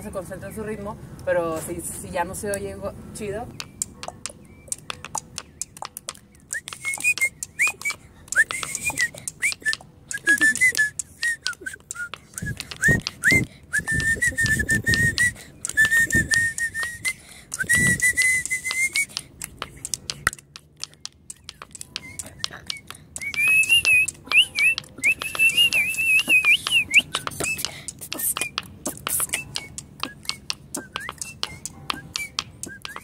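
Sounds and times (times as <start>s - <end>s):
stone tapping and scraping on pavement: 3.5s - 33.0s
person whistling a tune: 6.3s - 19.2s, 21.3s - 33.0s.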